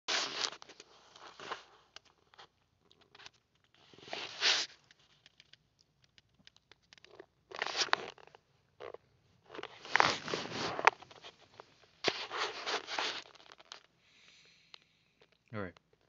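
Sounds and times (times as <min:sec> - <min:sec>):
rustling and handling noise: 0:00.1 - 0:14.0
small clicks: 0:04.7 - 0:07.3.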